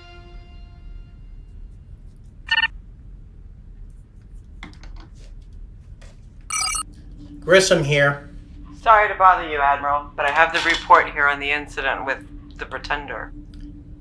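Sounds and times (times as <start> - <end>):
button clicks: 6.5 - 6.8
electronic console beeps: 6.5 - 6.8.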